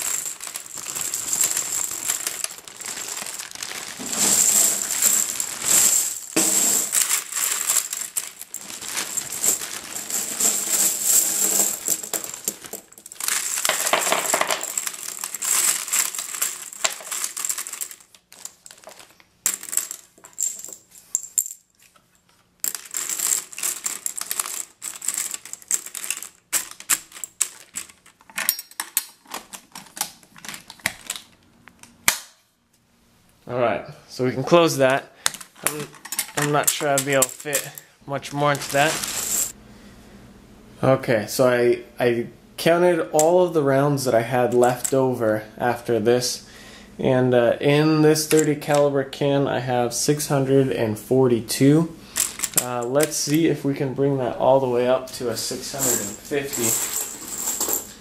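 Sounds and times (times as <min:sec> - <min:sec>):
cartridges pouring into metal can: 0:00.0 - 0:20.8, 0:22.6 - 0:28.0, 0:38.5 - 0:39.6, 0:55.7 - 0:58.0.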